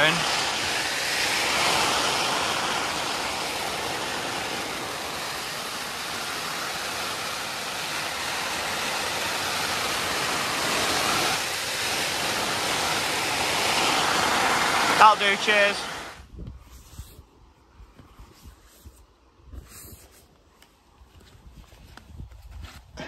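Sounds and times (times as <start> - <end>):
hose water spraying on tent: 0.0 - 17.3.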